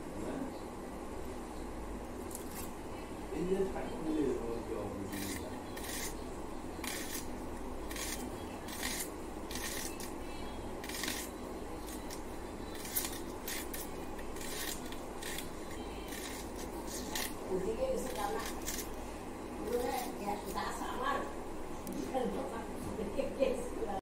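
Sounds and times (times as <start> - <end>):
low background hum: 0.0 - 24.0
vegetables being sliced on a blade: 5.1 - 6.2, 6.8 - 7.3, 7.9 - 10.2, 10.8 - 17.4.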